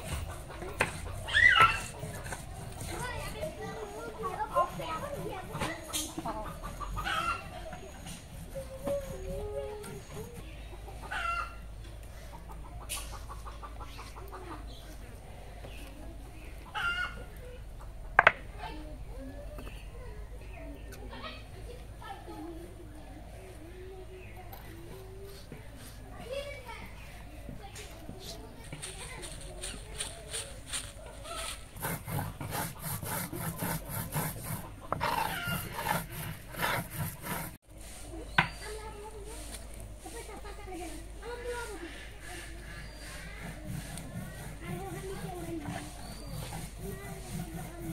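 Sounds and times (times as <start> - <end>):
stone rasping on stone: 0.0 - 7.3, 31.4 - 37.6, 42.3 - 47.9
chickens clucking: 0.0 - 47.9.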